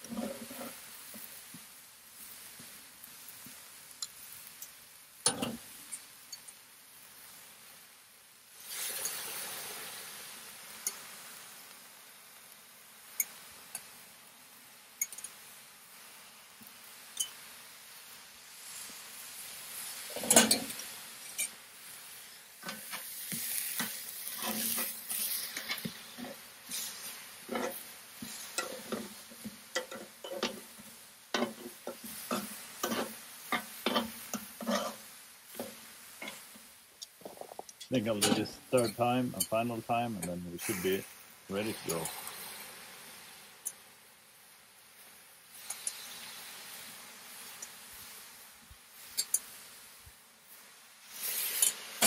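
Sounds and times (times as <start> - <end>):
sauce sizzling on hot griddle: 0.0 - 52.0
metal tongs clicking on griddle pan: 15.0 - 15.4, 29.7 - 30.6, 31.3 - 31.6, 49.1 - 49.5.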